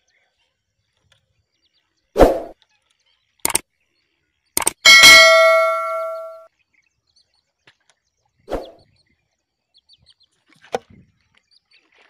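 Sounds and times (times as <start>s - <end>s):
faint bird chirps: 0.0s - 10.4s
metallic ring: 4.8s - 6.5s.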